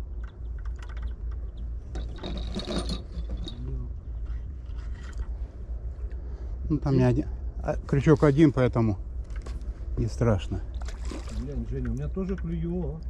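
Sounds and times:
steady low rumble: 0:03.0 - 0:13.0.

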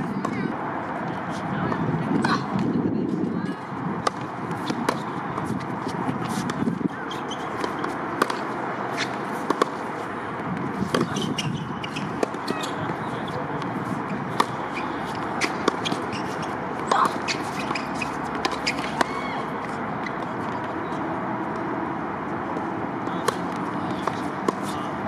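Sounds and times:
steady background noise: 0:00.0 - 0:25.0
tennis balls struck by rackets: 0:03.9 - 0:25.0
balls bouncing on hard court: 0:04.0 - 0:21.7, 0:22.5 - 0:25.0.

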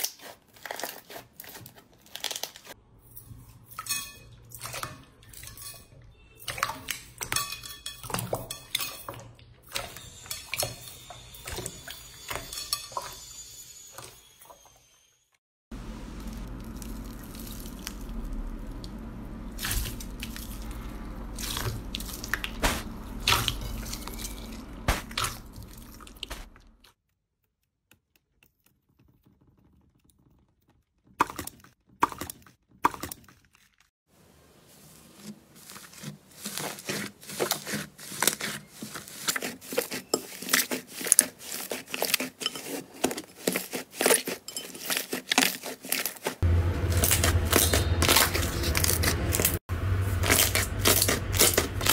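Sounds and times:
low hum: 0:15.7 - 0:26.8, 0:46.4 - 0:51.9
slime crackling and popping: 0:16.1 - 0:19.0.

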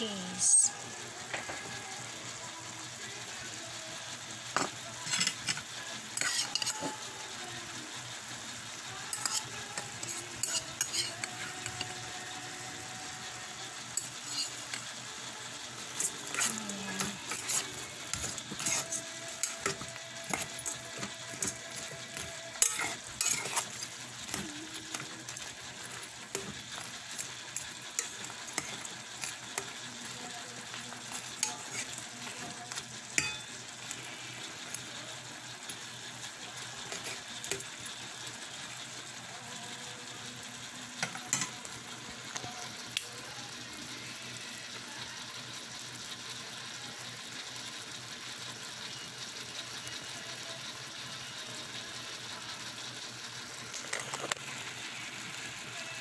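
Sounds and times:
shrimp sizzling in a pot: 0:00.0 - 0:56.0
utensil stirring against pot: 0:04.5 - 0:07.2, 0:08.8 - 0:39.5.

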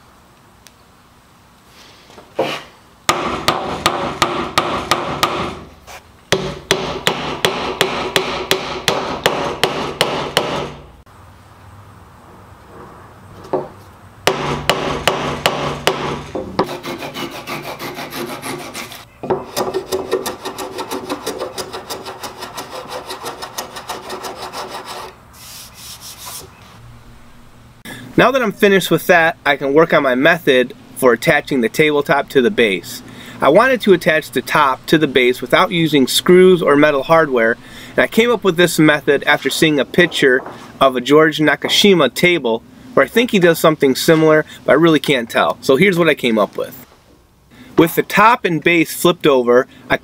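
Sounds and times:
hand saw cutting wood: 0:16.6 - 0:26.4.

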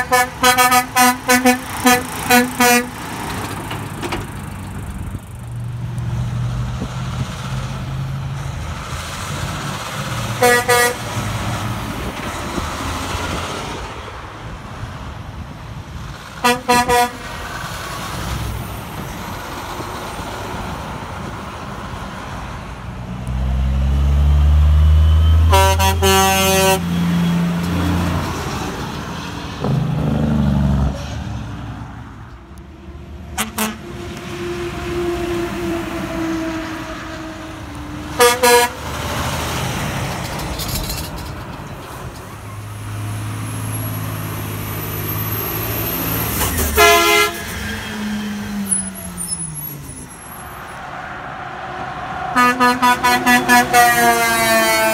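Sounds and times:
truck air horn blasts: 0:00.0 - 0:03.0, 0:10.4 - 0:11.1, 0:16.4 - 0:17.3, 0:25.0 - 0:27.1, 0:33.4 - 0:37.4, 0:38.1 - 0:38.9, 0:46.7 - 0:47.6, 0:52.2 - 0:54.9
road traffic: 0:00.0 - 0:54.9.

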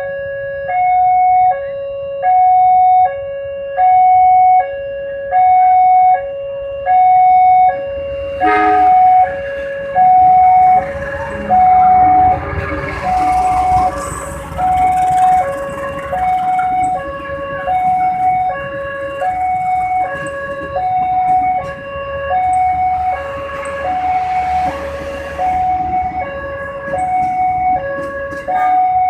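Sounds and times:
level crossing alarm two-note tone: 0:06.9 - 0:20.2
train wheels rumbling on rail: 0:08.1 - 0:29.0.

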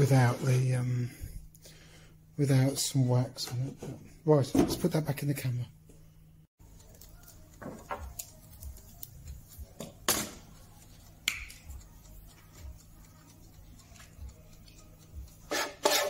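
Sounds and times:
scissors snipping: 0:06.8 - 0:09.8.

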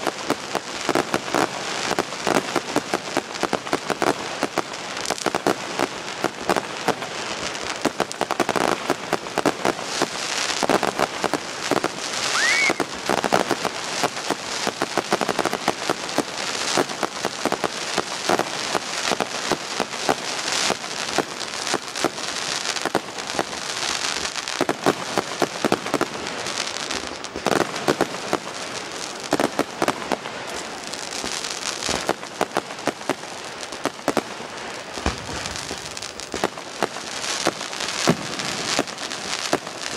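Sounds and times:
fireworks crackling: 0:00.0 - 0:39.9
rising firework whistle: 0:12.1 - 0:13.0.

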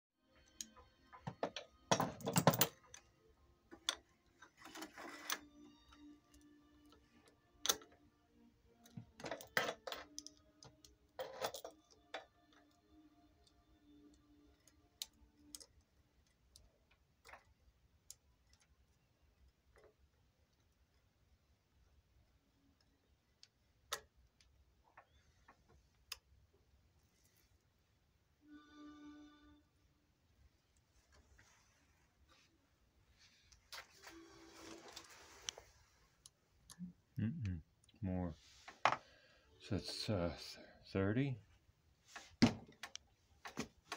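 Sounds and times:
metal chain clinking and rattling: 0:01.9 - 0:02.9, 0:11.1 - 0:11.9
brief steady tone: 0:28.4 - 0:29.8.

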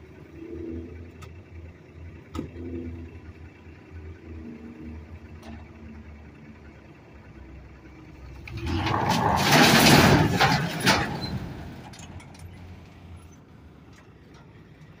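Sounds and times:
truck engine running: 0:00.0 - 0:15.0
concrete slabs crashing onto ground: 0:08.5 - 0:11.2.

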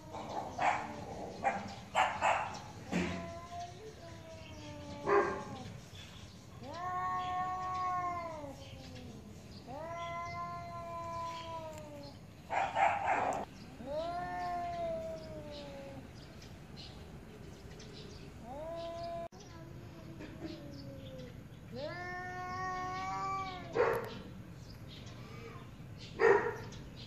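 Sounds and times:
cats yowling: 0:00.0 - 0:05.8, 0:06.5 - 0:16.2, 0:18.3 - 0:19.3, 0:20.1 - 0:24.4.

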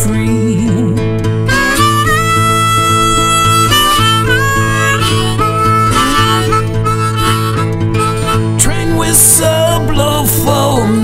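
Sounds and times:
guitar backing: 0:00.0 - 0:11.0
harmonica lead: 0:01.3 - 0:10.1.

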